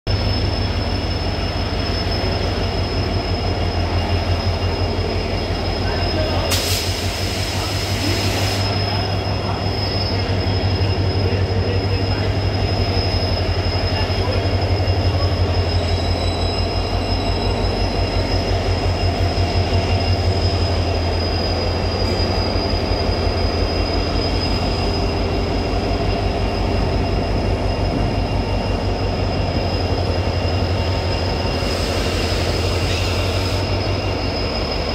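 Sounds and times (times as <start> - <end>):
diesel locomotive engines throbbing: 0.1 - 34.9
air hiss: 6.5 - 8.7.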